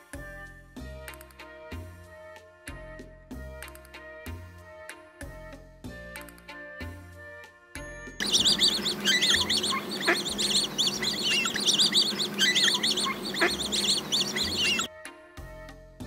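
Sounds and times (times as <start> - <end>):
ducks calling: 8.2 - 14.9.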